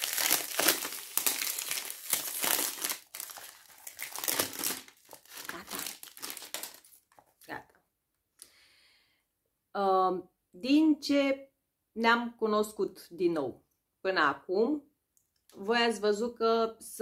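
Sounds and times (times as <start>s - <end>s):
packaging crinkling and rustling: 0.0s - 7.5s.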